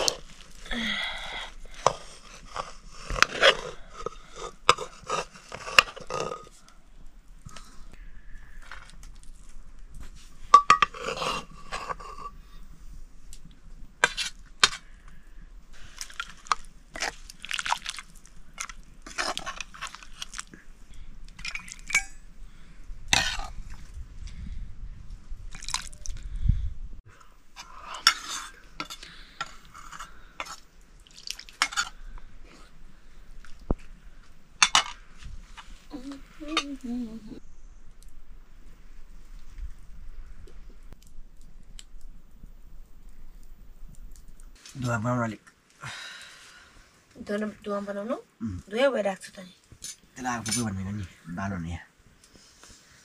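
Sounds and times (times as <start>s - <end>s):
metal pots and utensils clinking: 10.5s - 11.1s, 21.4s - 22.2s, 49.8s - 50.8s.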